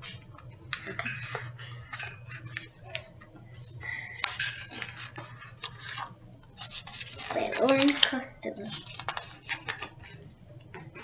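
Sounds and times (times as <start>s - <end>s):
book pages turning: 0.0s - 3.2s, 4.2s - 10.2s
paper rustling and tapping: 4.2s - 11.0s.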